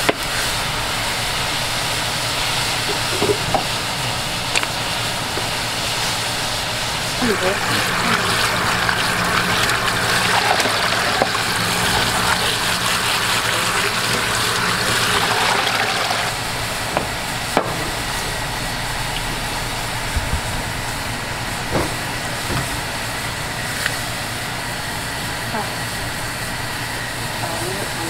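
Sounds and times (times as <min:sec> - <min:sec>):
broth boiling: 0:00.0 - 0:28.0
water running and splashing: 0:02.7 - 0:23.4.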